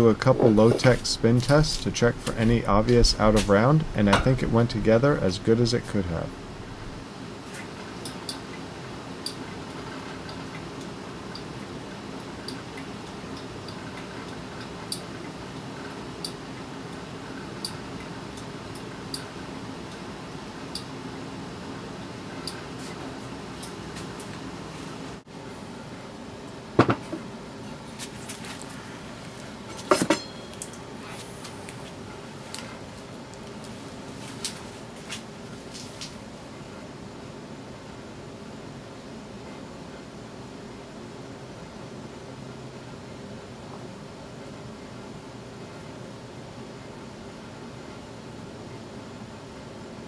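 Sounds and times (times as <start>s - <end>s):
steady low hum: 0.0s - 50.0s
metal rotor knocking on workbench: 26.8s - 27.2s.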